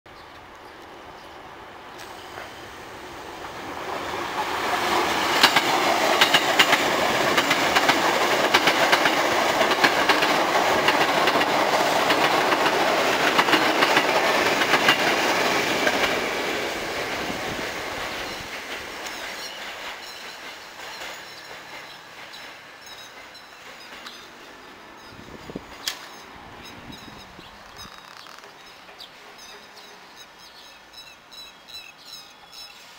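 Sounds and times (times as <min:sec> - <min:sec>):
electric train passing: 0:00.3 - 0:32.9
wheels clicking over rail joints: 0:04.3 - 0:16.2, 0:18.0 - 0:30.7.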